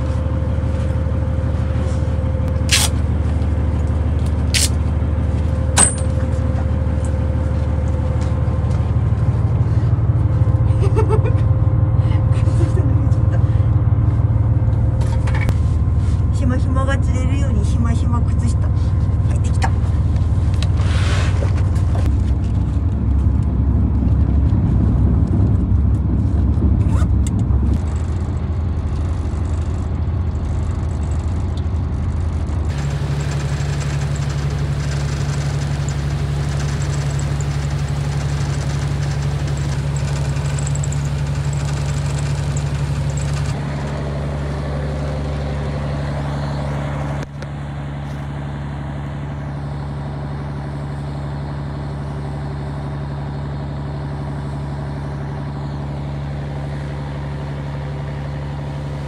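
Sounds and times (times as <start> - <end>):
ferry engine droning: 0.0 - 59.0.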